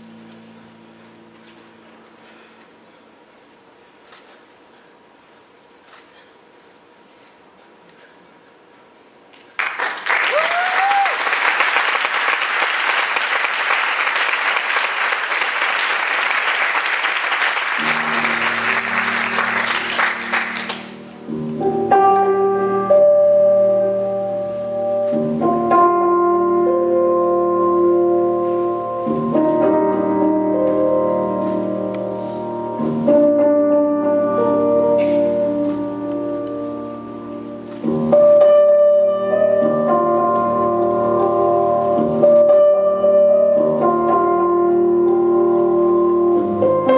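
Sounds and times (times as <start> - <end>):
theatre audience applauding: 9.6 - 21.0
short rising cheer: 10.1 - 11.7
quiet piano music: 17.7 - 46.9.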